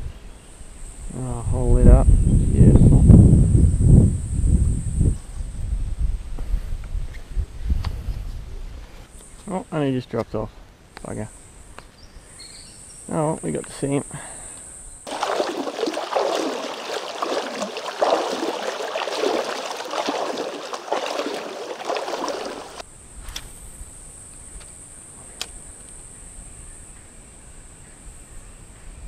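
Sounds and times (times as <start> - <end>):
water sloshing and splashing: 15.1 - 22.8.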